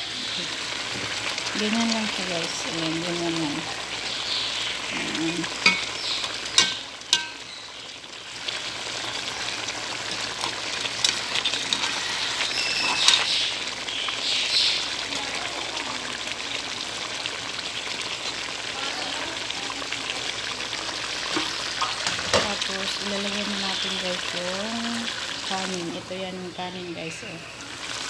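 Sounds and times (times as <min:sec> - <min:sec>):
fish and potatoes sizzling in a pot: 0:00.0 - 0:28.0
spoon knocking against a pot: 0:05.6 - 0:05.9, 0:06.6 - 0:07.4.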